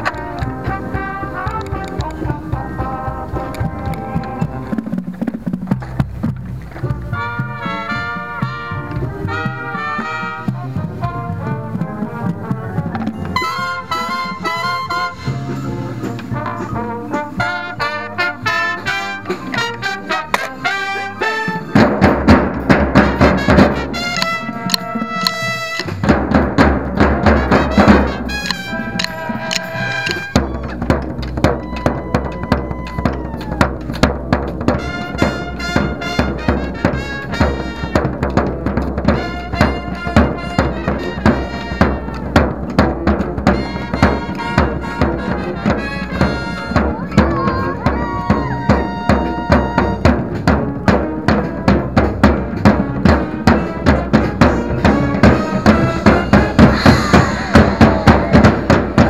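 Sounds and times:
brass chords: 0:00.0 - 0:05.4, 0:06.2 - 0:59.0
rapid snare drum strokes: 0:00.0 - 0:59.0.

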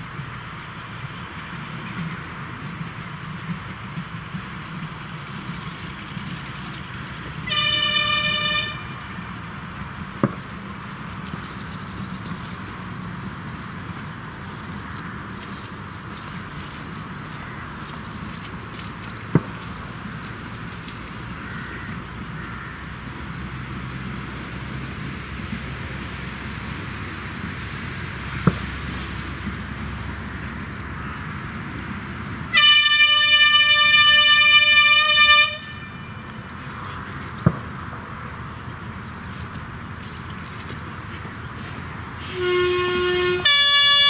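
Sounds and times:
diesel locomotive horn blast: 0:07.4 - 0:09.3, 0:32.5 - 0:36.3, 0:42.2 - 0:44.0
small birds chirping: 0:09.6 - 0:22.4, 0:36.8 - 0:41.9.

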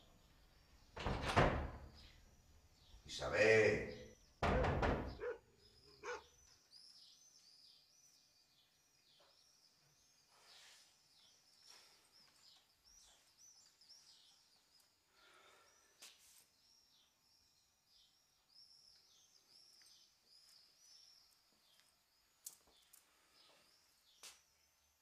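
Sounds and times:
small bird chirping: 0:05.1 - 0:25.0.

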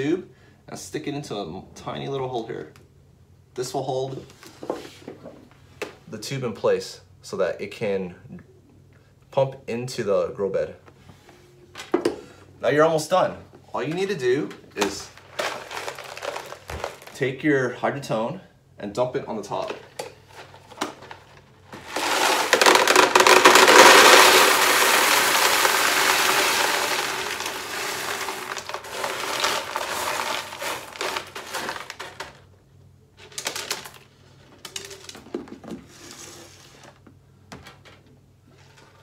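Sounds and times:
clay pebbles pouring into bucket: 0:14.8 - 0:17.2, 0:21.8 - 0:32.4.

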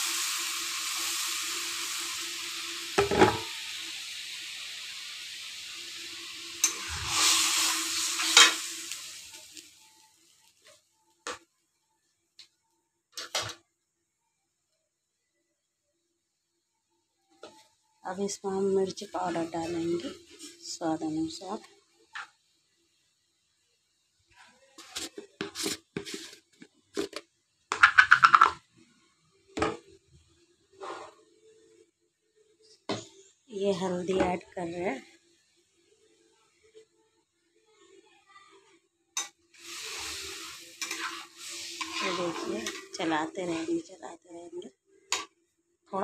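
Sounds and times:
mixture sizzling in a pan: 0:00.0 - 0:12.2, 0:17.4 - 0:46.0
spatula scraping a pan: 0:06.6 - 0:09.0, 0:24.8 - 0:27.2, 0:30.8 - 0:31.2, 0:39.2 - 0:43.9
spatula scraping iron pot: 0:40.8 - 0:43.7.

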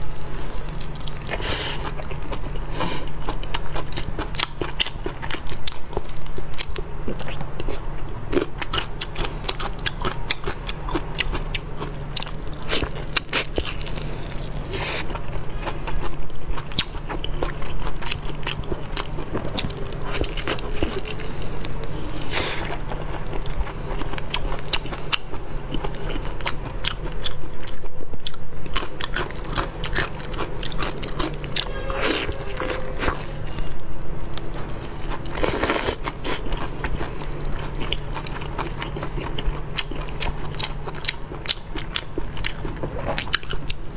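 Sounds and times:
low hum: 0:17.2 - 0:39.8
wet chewing and biting: 0:34.4 - 0:43.9.

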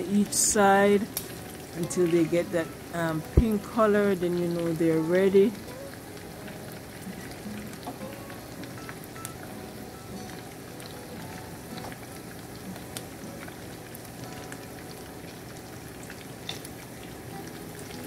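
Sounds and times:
shrimp sizzling in oil: 0:00.0 - 0:18.0.

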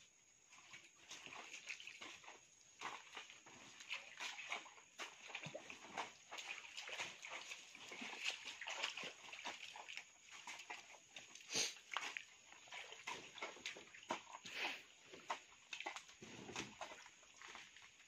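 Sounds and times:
wet mud squelching: 0:00.5 - 0:18.0.

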